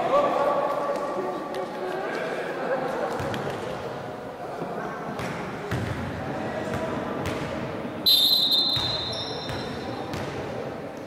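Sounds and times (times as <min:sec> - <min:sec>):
referee whistle blast: 0:08.1 - 0:09.6.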